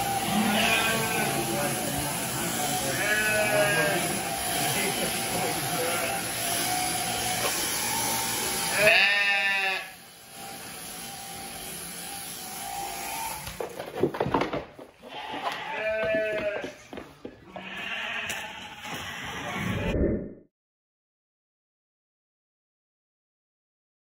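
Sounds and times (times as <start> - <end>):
electric shears running: 0.0 - 19.1
sheep bleating: 0.1 - 1.8, 2.5 - 6.5, 8.6 - 10.0, 15.0 - 19.0
hooves knocking in pen: 13.5 - 19.2.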